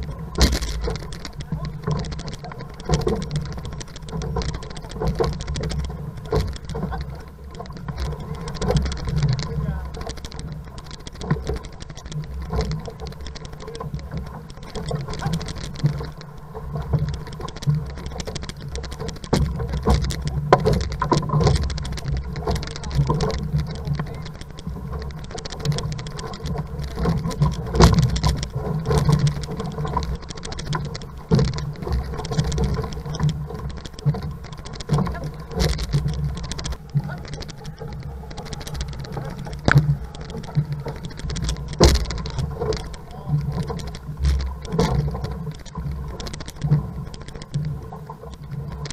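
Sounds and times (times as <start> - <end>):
steady low rumble: 0.0 - 48.9
water splashing along hull: 0.0 - 48.9.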